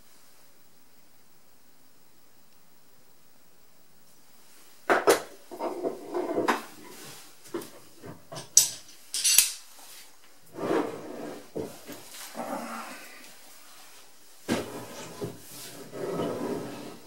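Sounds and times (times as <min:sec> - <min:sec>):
wooden block scraping: 0:05.5 - 0:07.6, 0:10.5 - 0:12.2, 0:14.5 - 0:17.0.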